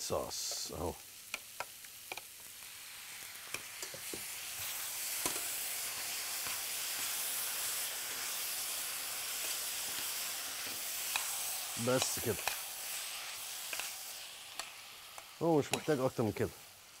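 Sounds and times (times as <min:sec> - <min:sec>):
vegetables sizzling in a pan: 0:00.0 - 0:17.0
sharp clicks against pan: 0:14.6 - 0:16.0.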